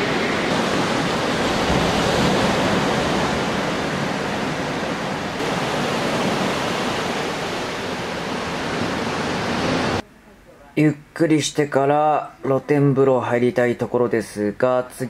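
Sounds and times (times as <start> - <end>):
sea surf breaking on shore: 0.0 - 10.0.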